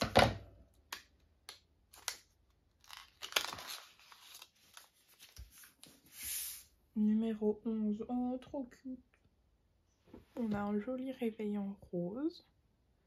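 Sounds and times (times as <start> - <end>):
gift wrapping rustling and tearing: 1.9 - 6.6.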